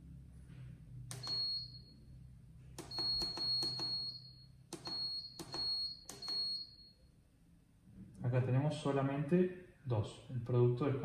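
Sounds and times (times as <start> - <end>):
keypad button clicks: 1.1 - 1.6, 2.8 - 6.7.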